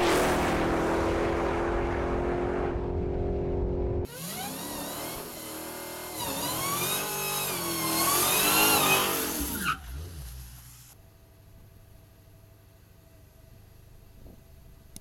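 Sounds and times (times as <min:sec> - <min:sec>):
car engine revving: 0:00.0 - 0:10.8
tyres spinning and squealing: 0:04.1 - 0:10.6.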